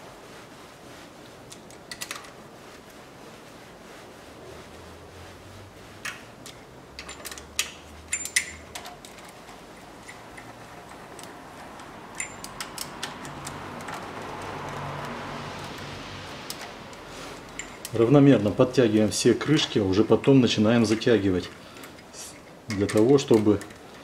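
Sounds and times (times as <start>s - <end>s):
ratchet wrench clicking: 12.1s - 14.0s.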